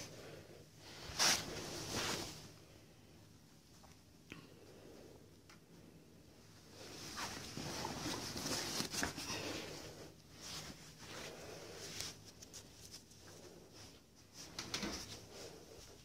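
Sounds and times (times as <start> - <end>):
rustling handling noise: 0.9 - 2.6, 6.5 - 16.0.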